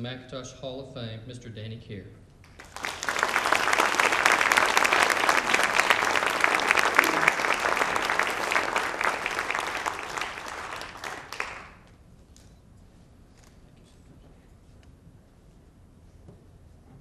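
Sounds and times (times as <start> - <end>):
audience applauding: 2.5 - 11.9.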